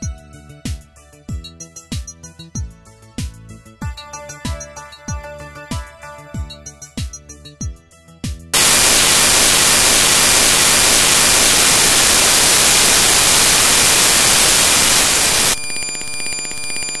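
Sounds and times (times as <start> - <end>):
static white noise hiss: 8.6 - 15.6
pulsing electronic ringing: 8.6 - 17.0.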